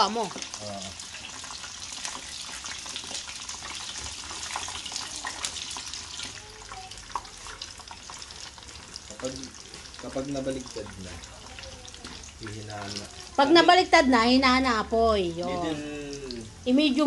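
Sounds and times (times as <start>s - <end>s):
food deep-frying in oil: 0.0s - 17.0s.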